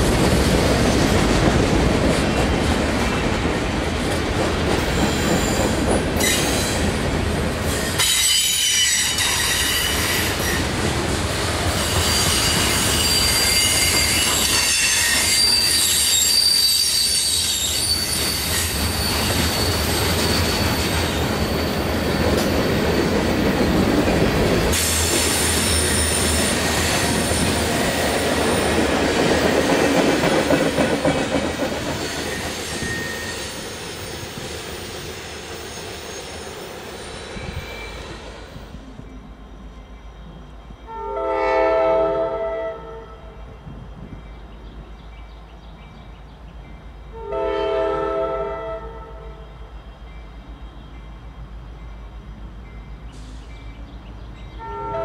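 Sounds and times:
train wheels rumbling on rails: 0:00.0 - 0:41.2, 0:43.0 - 0:48.4, 0:49.2 - 0:55.0
train wheels squealing: 0:04.7 - 0:07.0, 0:07.6 - 0:10.8, 0:11.7 - 0:41.0, 0:52.6 - 0:54.8.

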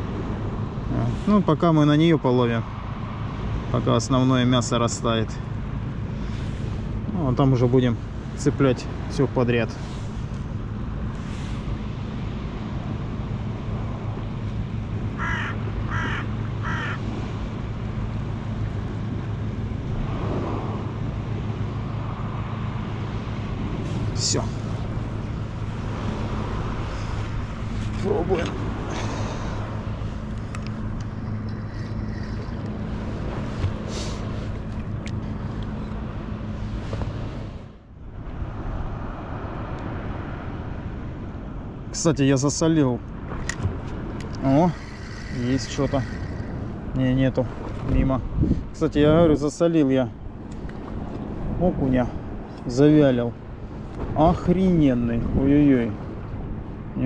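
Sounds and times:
surf: 0:00.0 - 0:37.8
wind and sea swell: 0:00.0 - 0:57.0
low hum: 0:02.6 - 0:42.0, 0:43.0 - 0:57.0
crow cawing: 0:15.2 - 0:17.0
wind noise: 0:43.2 - 0:49.5.

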